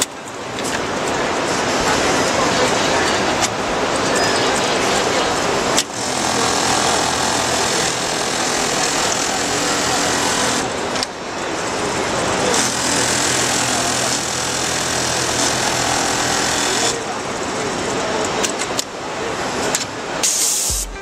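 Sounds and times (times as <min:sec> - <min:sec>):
sewing machine stitching: 0:05.9 - 0:10.8, 0:12.5 - 0:17.0.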